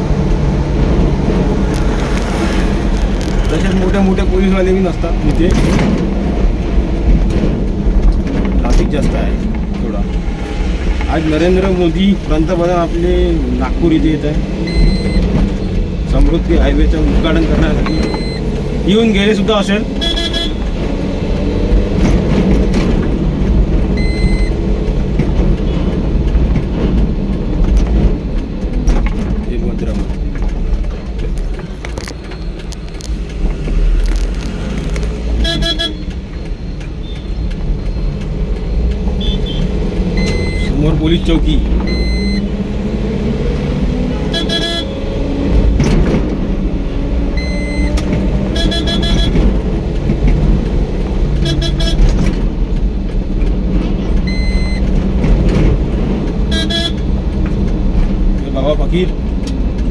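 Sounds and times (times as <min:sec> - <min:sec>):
car engine and road rumble: 0:00.0 - 0:59.9
short high-pitched beep: 0:14.7 - 0:15.2, 0:17.9 - 0:18.5, 0:24.0 - 0:24.5, 0:54.3 - 0:54.8
short car horn toots: 0:48.6 - 0:49.3, 0:56.5 - 0:57.0.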